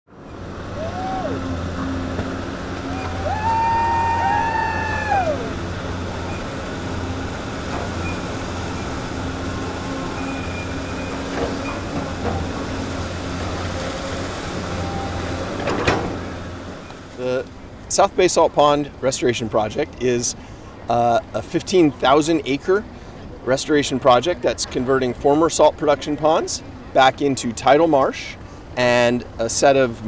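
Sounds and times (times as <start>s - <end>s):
hydraulic whine: 0.1s - 17.7s
excavator diesel engine running: 0.1s - 18.0s.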